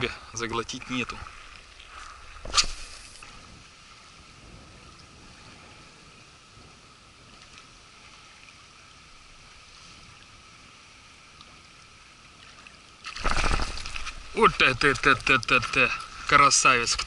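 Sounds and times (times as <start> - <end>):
wind on microphone: 1.9 - 8.1
waves lapping on gravel: 13.0 - 17.0.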